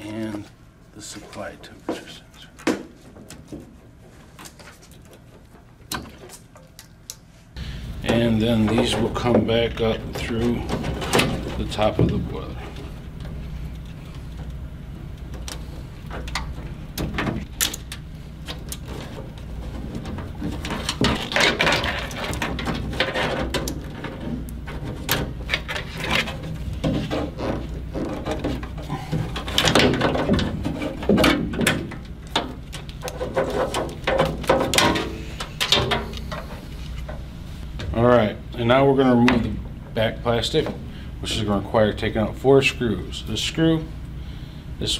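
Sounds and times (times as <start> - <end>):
steady low hum: 0.0 - 44.9
wires scraping against cabinet: 8.0 - 31.6, 32.3 - 37.8.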